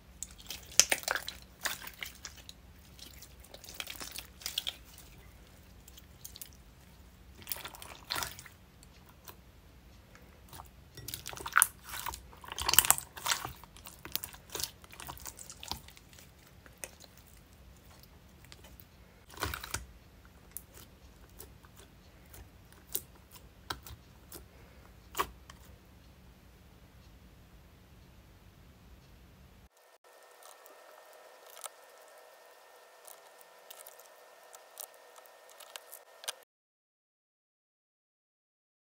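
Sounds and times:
slime squelching and popping: 0.2 - 6.6, 7.4 - 8.5, 10.5 - 19.9.

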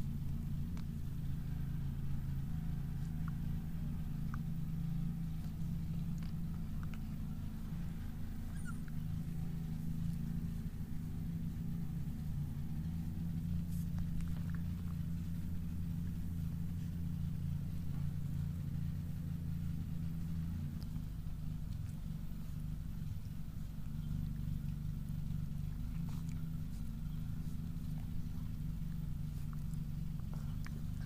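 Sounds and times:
steady low hum: 0.0 - 31.0
faint high squeaks and clicks: 4.2 - 9.4.

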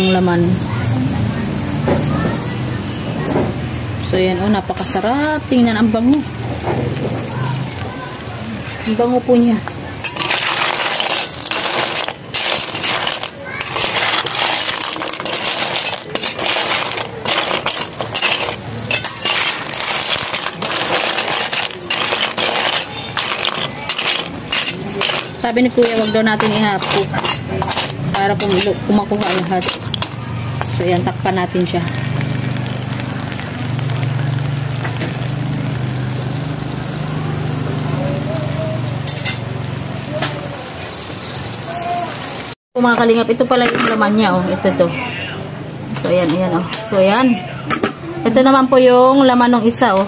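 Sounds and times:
shells clattering in metal wok: 10.0 - 30.8, 39.0 - 39.5
metal spatula scraping pan: 10.0 - 30.9.

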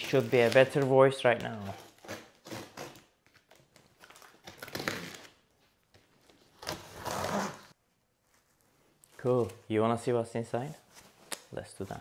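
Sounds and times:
packing tape pulled off: 1.8 - 5.4.

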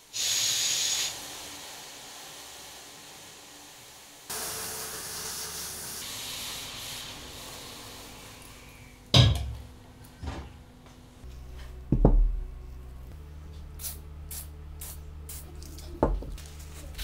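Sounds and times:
sandblasting gun hissing: 0.0 - 9.0.

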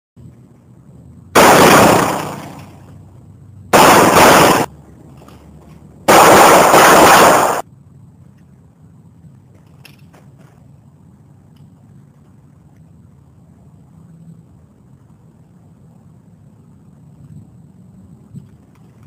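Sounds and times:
handgun shots: 1.4 - 2.7, 6.1 - 7.6.

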